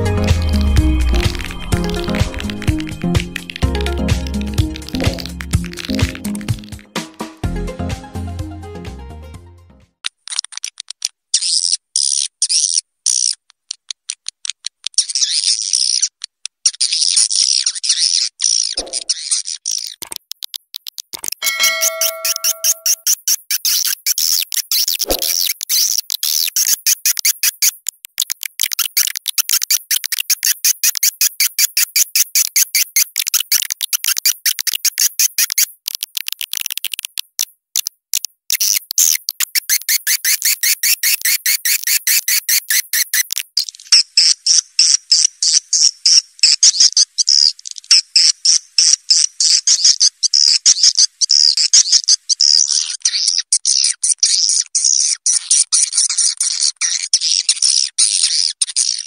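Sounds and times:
high-pitched bird chirping: 21.4s - 27.7s, 38.6s - 43.8s.

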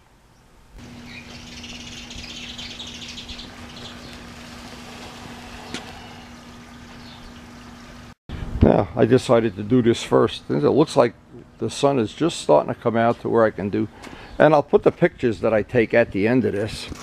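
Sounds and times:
steady low hum: 0.0s - 16.1s
birds chirping: 0.2s - 8.2s, 9.6s - 14.6s.

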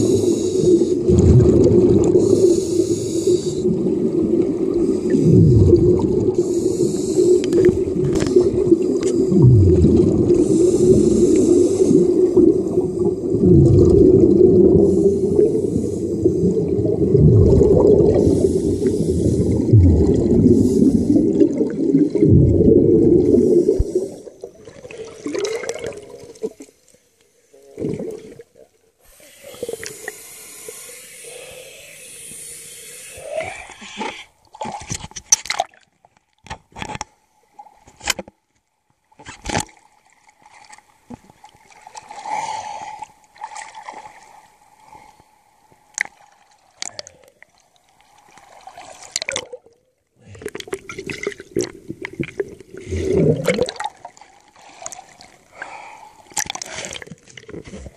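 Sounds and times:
scuba exhaust bubbles rushing: 0.0s - 26.0s, 50.6s - 54.1s
water sloshing and splashing: 7.3s - 26.8s, 34.0s - 42.3s, 43.3s - 44.6s, 46.0s - 55.6s, 56.2s - 57.9s.

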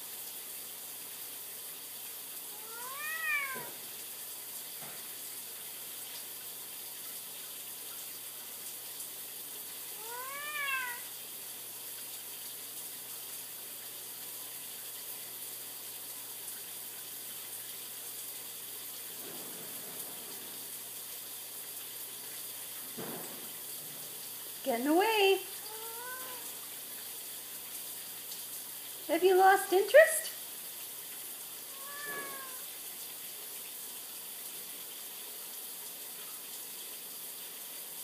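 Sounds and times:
cat meowing: 2.5s - 3.8s, 10.0s - 11.1s, 25.6s - 26.6s, 31.7s - 32.7s.

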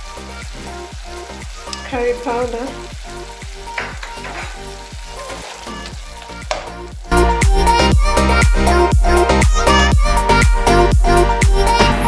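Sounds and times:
vegetables sizzling in oil: 0.0s - 8.1s
background music with steady beat: 0.0s - 12.0s.

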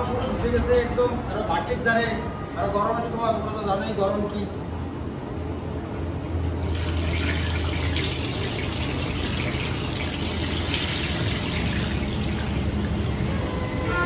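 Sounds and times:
batter sizzling in hot oil: 6.6s - 13.2s.

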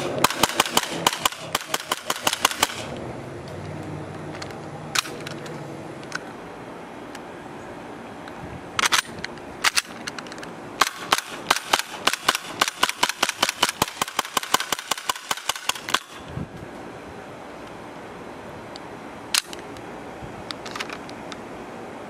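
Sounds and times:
airsoft pistol shots: 0.0s - 2.9s, 10.8s - 16.2s.

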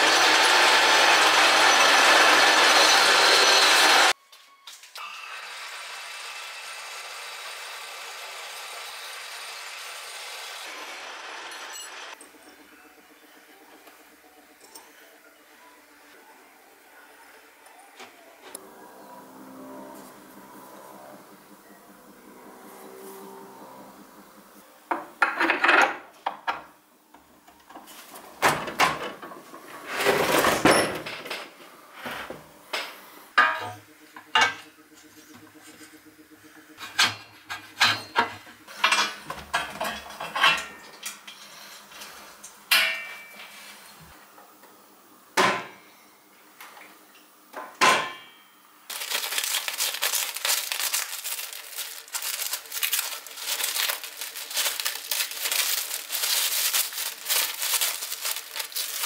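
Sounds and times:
plastic bag crinkling: 48.9s - 59.0s.

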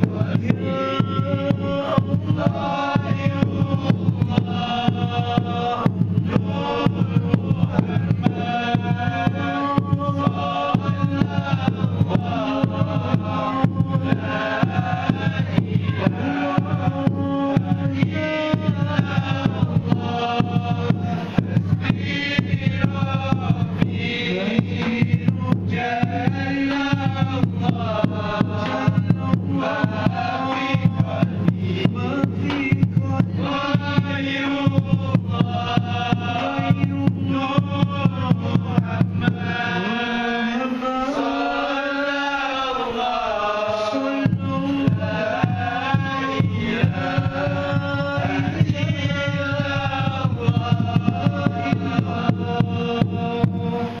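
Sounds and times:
hand frame drums: 0.0s - 40.1s, 43.7s - 54.0s
men singing in unison: 0.0s - 54.0s.

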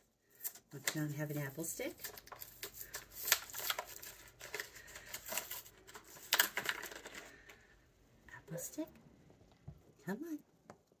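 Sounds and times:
crinkling and rustling: 0.0s - 7.9s.

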